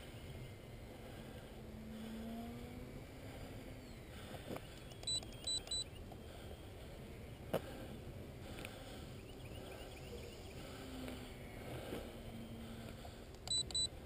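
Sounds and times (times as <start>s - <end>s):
distant model plane motor hum: 0.0s - 14.0s
short high electronic beeps: 4.9s - 6.0s.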